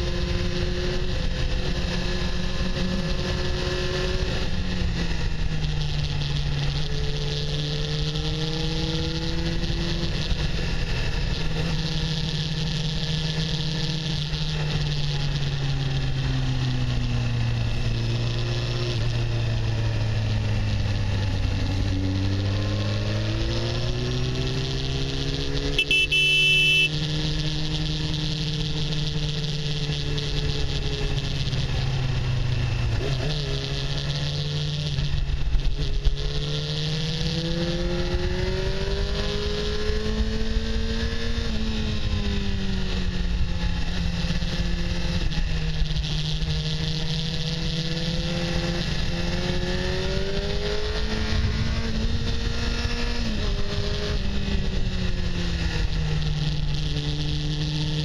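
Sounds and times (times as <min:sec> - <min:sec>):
motorcycle engine running: 0:00.0 - 0:58.0
high-pitched beep: 0:25.8 - 0:26.9.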